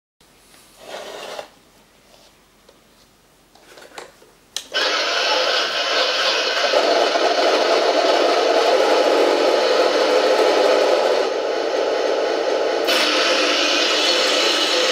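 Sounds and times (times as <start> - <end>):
model tank engine buzzing: 4.7 - 11.8, 12.4 - 14.9.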